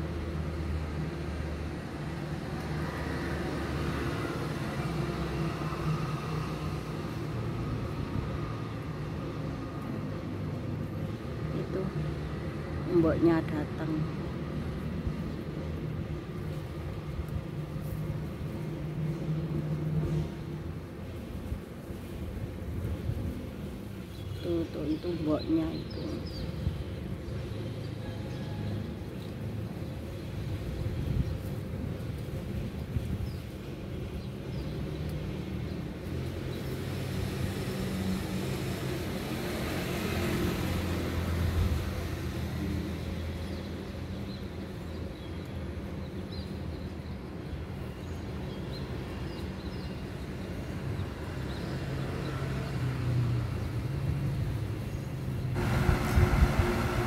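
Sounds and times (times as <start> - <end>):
road noise: 0.0 - 57.0
urban background rumble: 0.0 - 57.0
vehicle engine running: 55.6 - 57.0.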